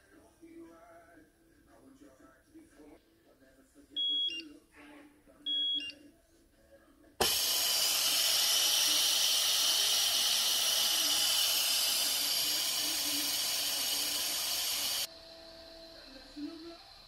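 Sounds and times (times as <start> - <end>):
steam valve hissing: 7.2 - 15.1.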